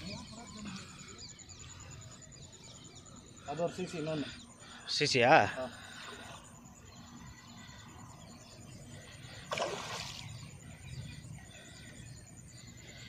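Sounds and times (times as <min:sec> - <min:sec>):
faint outdoor background: 0:00.0 - 0:13.0
fish splashing in water: 0:09.5 - 0:10.4.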